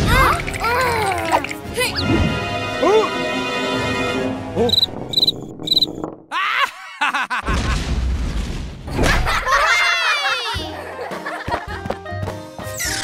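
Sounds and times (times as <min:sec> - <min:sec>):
high cartoon chirps: 0:04.7 - 0:06.0.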